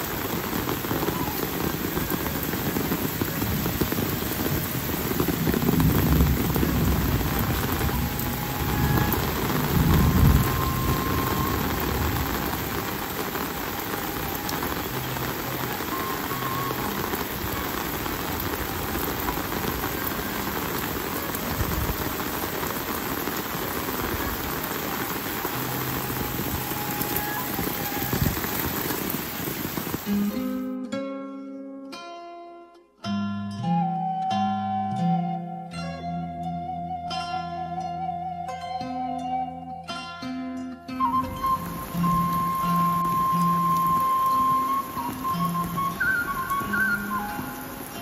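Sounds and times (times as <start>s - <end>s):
steady rainfall: 0.0s - 30.9s, 41.0s - 48.0s
plucked zither music: 30.5s - 35.2s, 35.8s - 41.5s.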